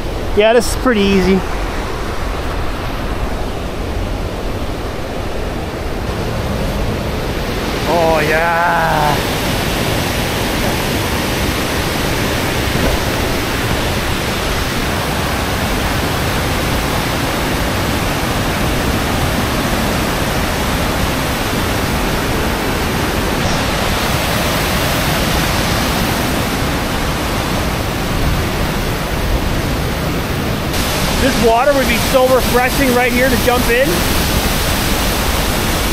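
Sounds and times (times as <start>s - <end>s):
waterfall pouring: 30.7s - 35.9s.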